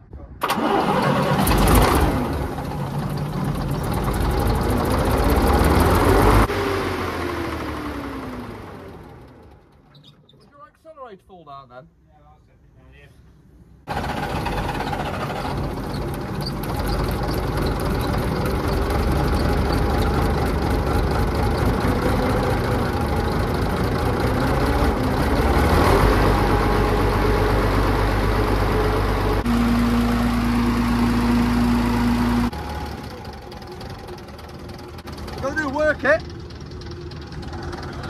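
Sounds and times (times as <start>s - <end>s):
engine running: 0.4s - 10.0s, 13.9s - 38.0s.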